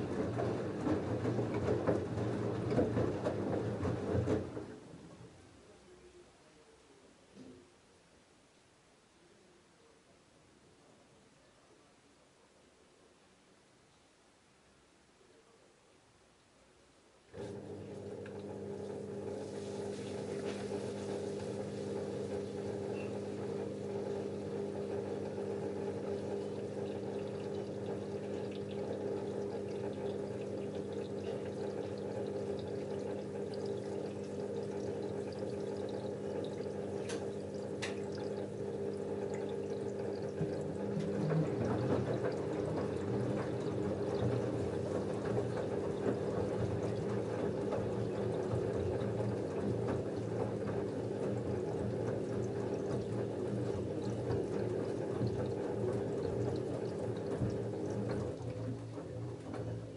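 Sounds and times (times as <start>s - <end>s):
drum tumbling wet laundry: 0.0s - 5.4s, 17.3s - 59.9s
water rushing into washing machine: 0.0s - 5.4s, 17.3s - 59.9s
washing machine hum: 0.0s - 5.8s, 17.3s - 59.9s.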